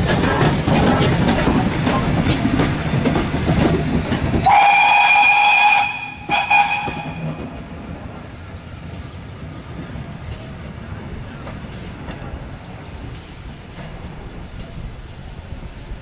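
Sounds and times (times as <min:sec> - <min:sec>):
steam train running on rails: 0:00.0 - 0:16.0
steam train whistle: 0:04.4 - 0:07.4.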